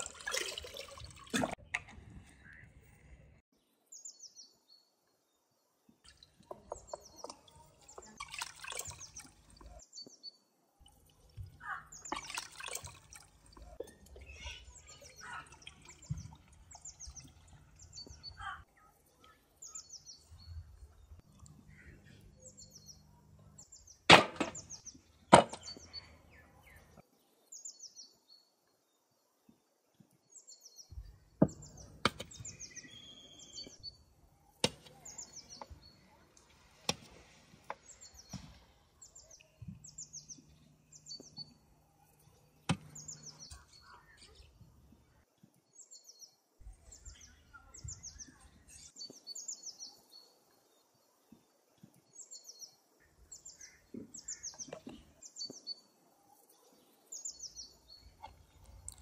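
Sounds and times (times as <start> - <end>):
water splashing in a basin: 0.0 - 2.0, 6.0 - 9.8, 10.8 - 18.0
small birds chirping: 6.0 - 59.0.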